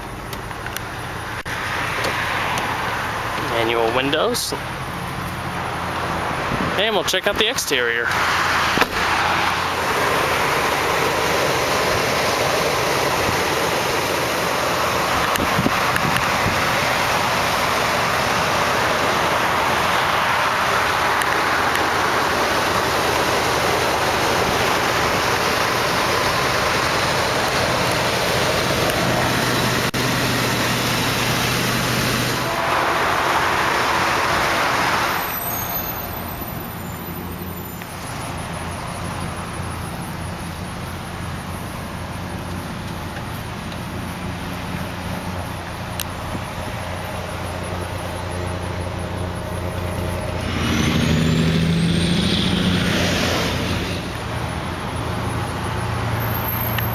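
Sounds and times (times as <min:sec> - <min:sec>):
pickup engine idling: 0:00.0 - 0:50.4.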